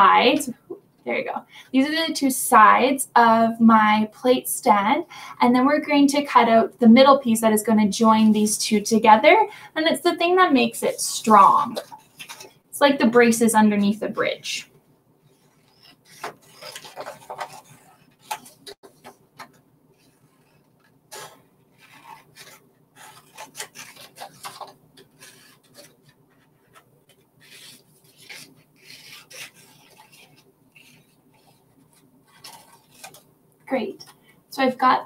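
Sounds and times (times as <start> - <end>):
paper rustling: 10.9 - 12.6, 15.3 - 34.3
scissors cutting cardstock: 15.3 - 33.3.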